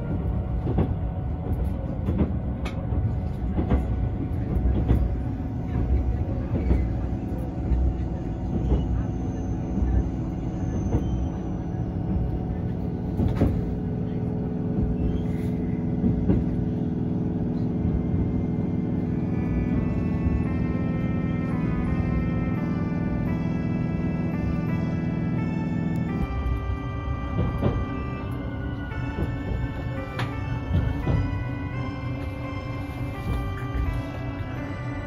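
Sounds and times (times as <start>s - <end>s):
train running rumble: 0.0s - 35.0s
wheels clicking over rail joints: 26.0s - 34.4s.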